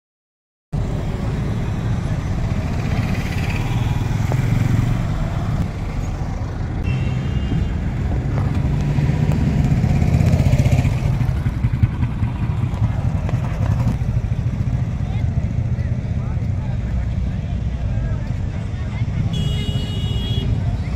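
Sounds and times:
motorcycle engine running: 7.3s - 16.9s.

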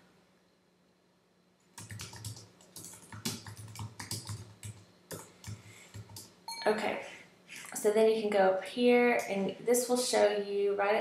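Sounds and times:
computer keyboard key clicks: 1.8s - 6.3s.

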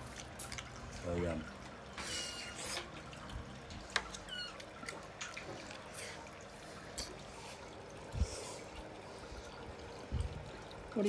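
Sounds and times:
wet chewing: 0.0s - 1.0s.

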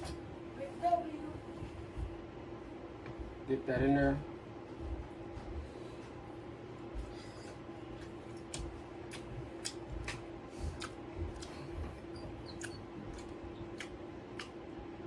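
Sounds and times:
steady low hum: 0.0s - 15.0s
person chewing: 7.4s - 14.8s.

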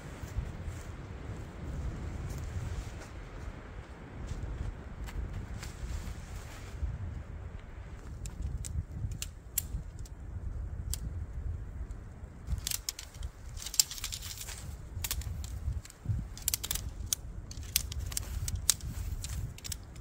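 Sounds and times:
wind buffeting microphone: 0.0s - 20.0s
camping gear clicks and rattles: 8.0s - 10.2s, 12.4s - 20.0s.

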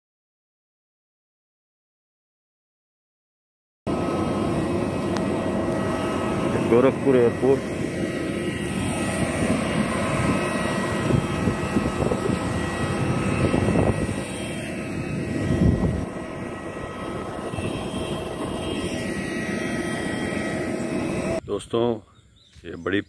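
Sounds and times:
jet engine rushing and whining: 3.9s - 21.4s.

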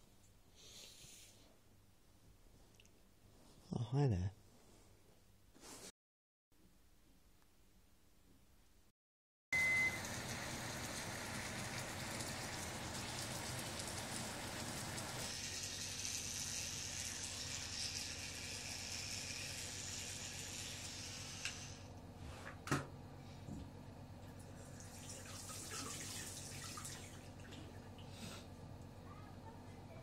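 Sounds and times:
short high beep: 9.6s - 10.0s.

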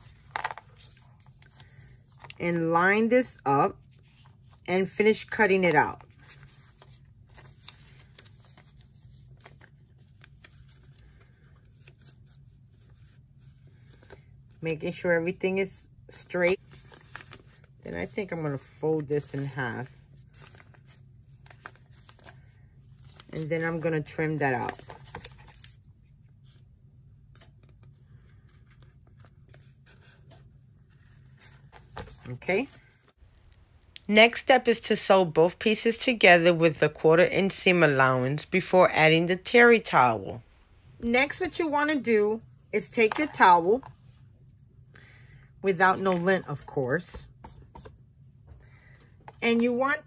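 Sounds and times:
low steady hum: 0.0s - 50.0s
paper and fabric rustling: 16.2s - 26.6s.

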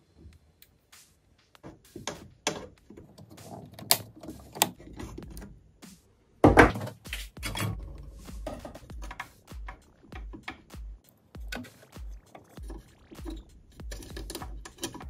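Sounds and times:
pliers snipping and clicking on metal: 2.1s - 5.5s, 11.6s - 15.0s.

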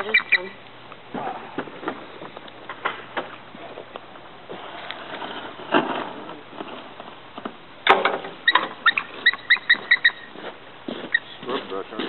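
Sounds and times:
eagle chirping: 0.0s - 0.6s, 8.3s - 10.4s, 11.0s - 11.4s.

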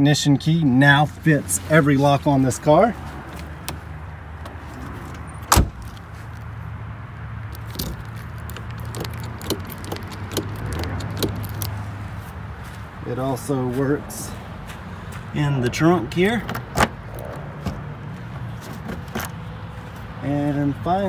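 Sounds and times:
car door shutting thud: 5.5s - 5.9s
key clicking in lock: 7.6s - 11.7s.

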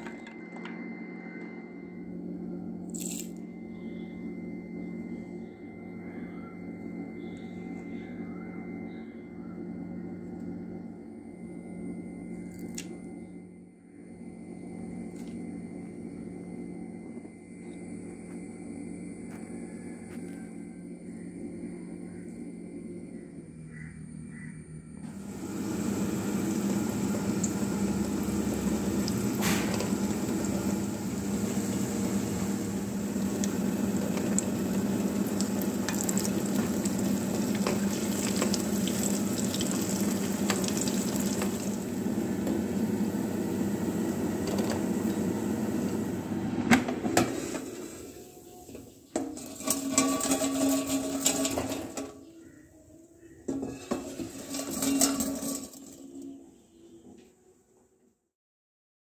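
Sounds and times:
deep-frying oil sizzle: 25.2s - 43.0s
kitchen utensils clinking: 49.2s - 52.1s, 53.5s - 56.3s.

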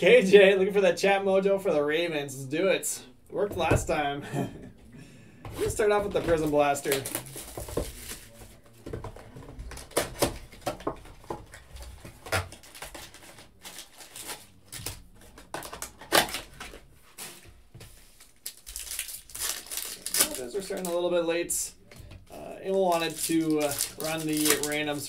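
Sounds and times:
cellophane tearing and crinkling: 6.4s - 8.4s, 12.4s - 16.6s, 18.2s - 21.0s, 22.7s - 25.0s.

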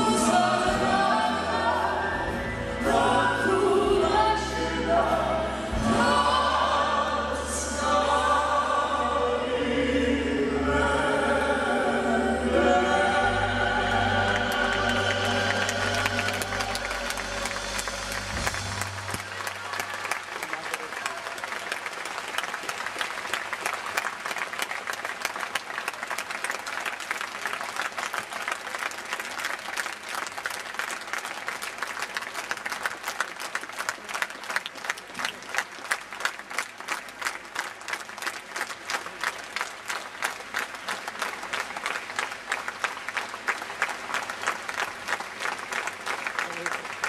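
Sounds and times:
audience applauding: 13.9s - 47.0s.

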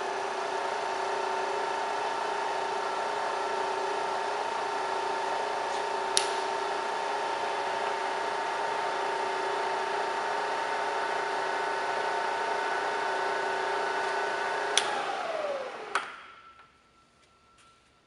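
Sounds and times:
vertical mill whine: 0.0s - 16.8s
spindle drive winding down: 2.6s - 16.2s
switch click: 6.1s - 6.4s, 14.7s - 15.0s.

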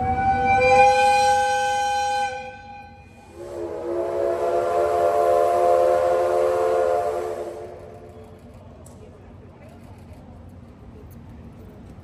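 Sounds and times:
steam locomotive whistle blasts: 0.0s - 8.0s.

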